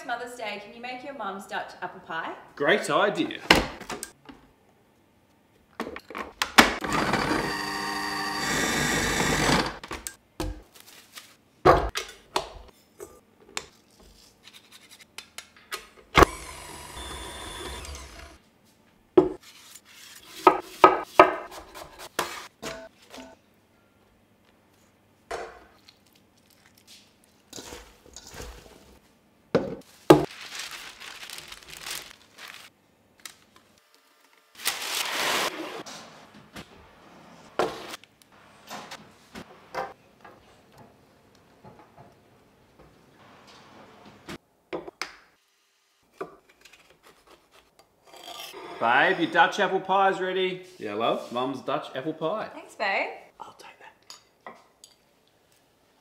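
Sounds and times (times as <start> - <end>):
food processor motor: 6.8 - 9.8, 16.2 - 18.4.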